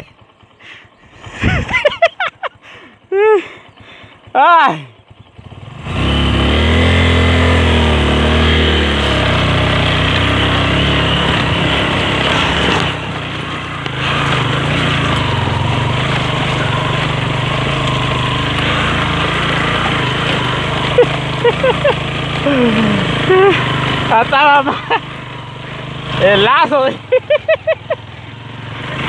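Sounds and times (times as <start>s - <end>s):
motorcycle engine revving: 0.0s - 29.0s.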